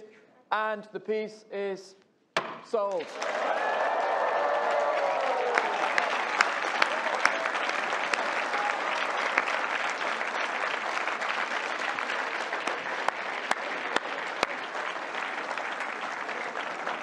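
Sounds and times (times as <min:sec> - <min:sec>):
audience applauding: 0:02.9 - 0:17.0.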